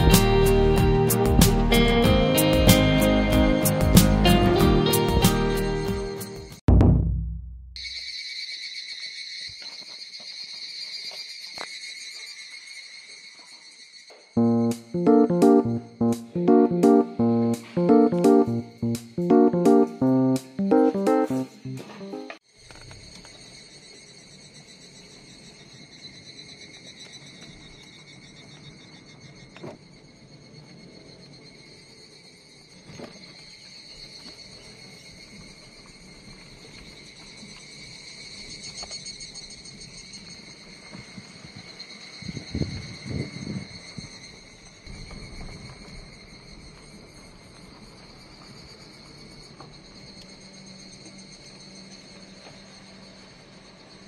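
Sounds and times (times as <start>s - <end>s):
low rumbling thumps: 6.7s - 7.8s
insects trilling: 7.8s - 54.0s.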